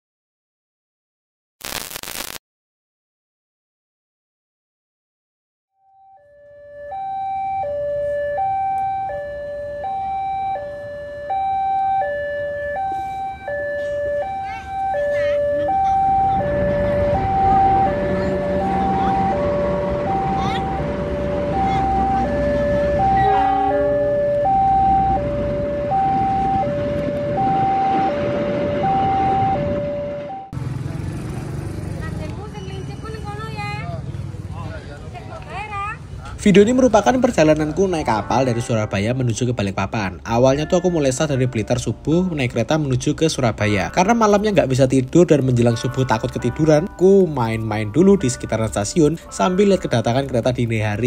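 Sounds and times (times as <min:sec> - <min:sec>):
two-tone electronic alarm: 0:05.8 - 0:30.6.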